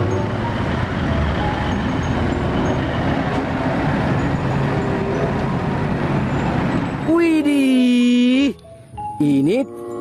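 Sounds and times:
truck diesel engine running: 0.0s - 7.0s.

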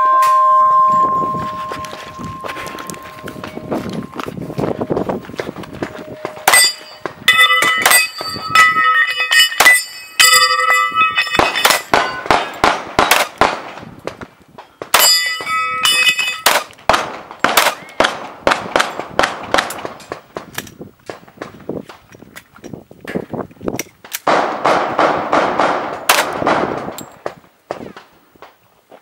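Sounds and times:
steel plates clanging and ringing: 0.0s - 12.6s, 15.0s - 16.7s
pistol shots: 11.4s - 13.8s, 16.4s - 20.0s, 24.2s - 27.0s.

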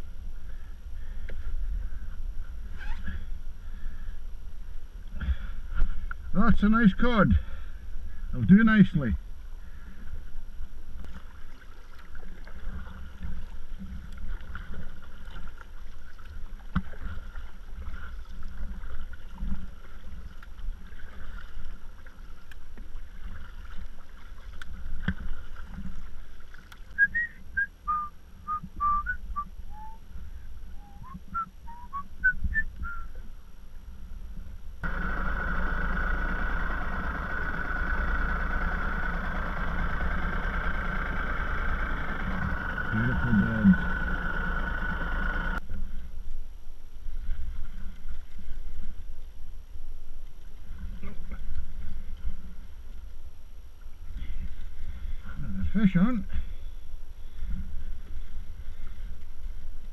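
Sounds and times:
water slapping against kayak hull: 11.0s - 27.0s
short whistled notes: 27.0s - 30.0s, 30.8s - 33.2s
steady low rumble: 27.4s - 59.9s
water rushing: 34.8s - 45.6s.

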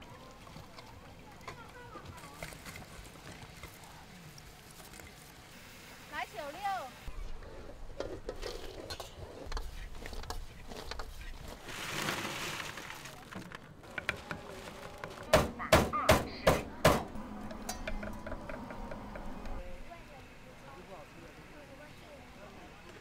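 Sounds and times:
food stall clicks and knocks: 13.3s - 19.6s
loud sharp knocks: 15.3s - 17.1s.

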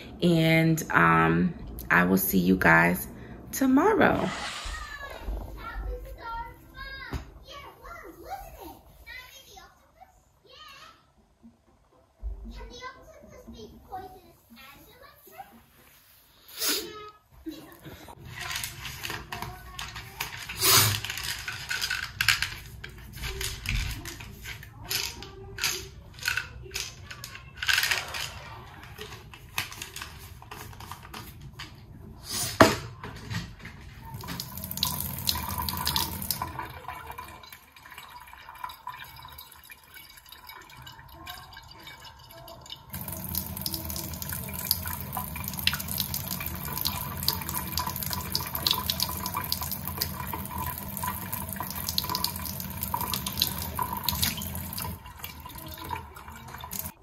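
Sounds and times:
tap running into sink: 34.1s - 37.4s, 42.9s - 56.9s.

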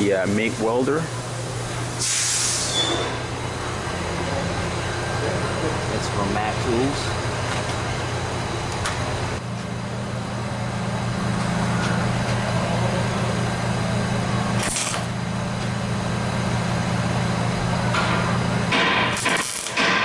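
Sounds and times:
welder electrical hum: 0.0s - 20.0s.

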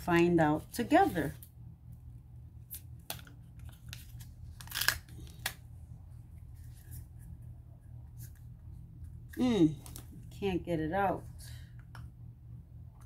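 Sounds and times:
plastic packet crinkling and tearing: 3.0s - 5.6s.

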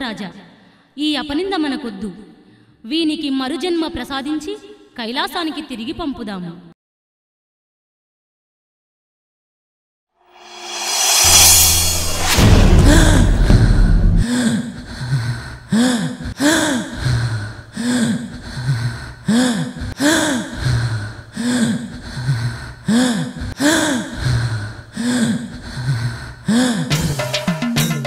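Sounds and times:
repeated gasps: 0.5s - 1.0s, 2.4s - 2.8s, 14.2s - 27.0s
low droning tone: 10.4s - 14.2s.

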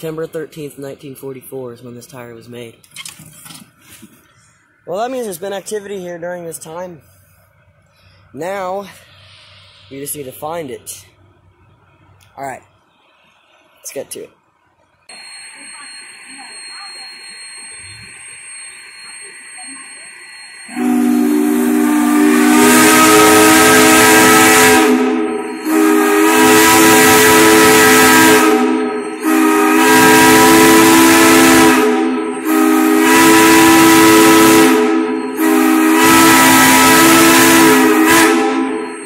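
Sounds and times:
steam whistle blasts: 20.6s - 39.0s.

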